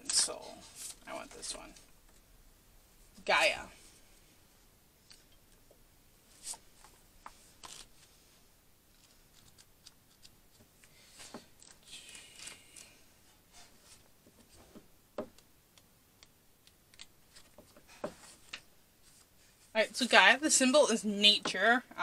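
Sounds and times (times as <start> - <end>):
paper pages rustling: 0.1 - 1.9.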